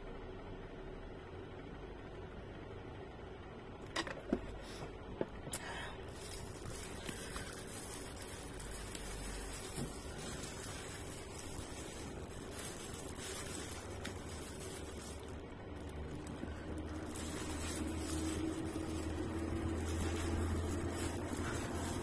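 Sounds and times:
steady hiss: 4.5 - 22.0
rice squishing: 5.5 - 22.0
plastic glove rustling: 5.6 - 22.0.

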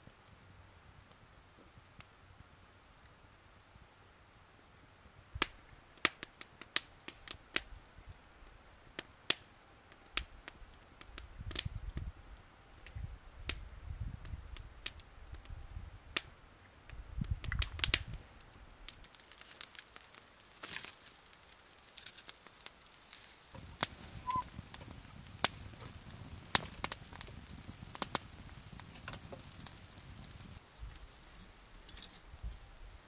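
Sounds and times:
campfire crackling and popping: 0.0 - 4.1, 5.3 - 33.0
low rumbling noise: 23.6 - 30.6.

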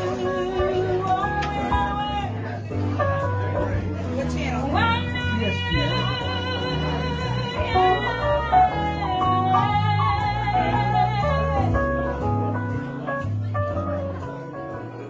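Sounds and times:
woman singing: 0.0 - 2.5, 4.2 - 11.9
electronic keyboard chords and bass: 0.0 - 15.0.

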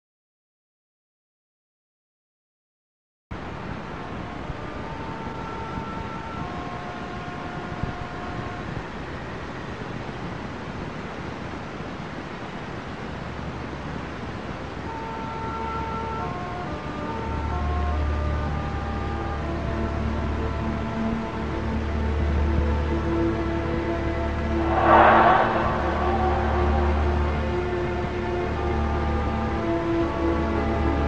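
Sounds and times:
steady rushing hiss: 24.4 - 28.6.

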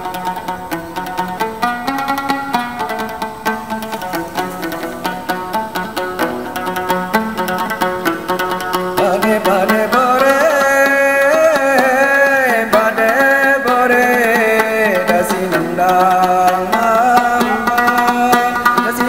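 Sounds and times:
lute rapid plucking: 0.0 - 19.0
man singing: 9.0 - 19.0.

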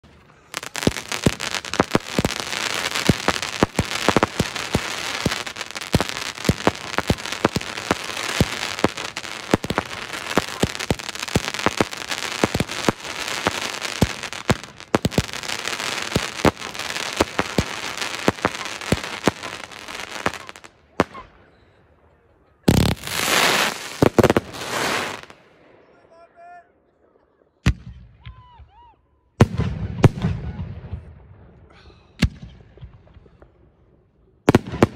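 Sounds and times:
firework shells bursting: 0.0 - 21.2.

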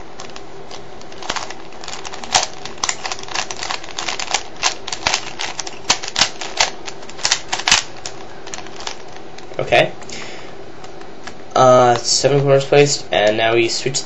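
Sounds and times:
puzzle cube plastic clicks: 1.0 - 9.6.

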